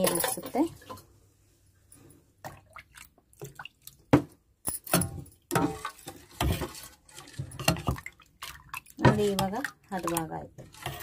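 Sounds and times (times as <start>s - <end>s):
ladle stirring batter: 5.3s - 11.0s.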